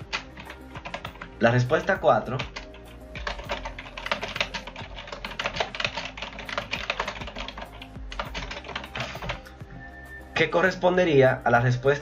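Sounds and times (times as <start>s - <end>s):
fast typing on keyboard: 0.0s - 9.5s.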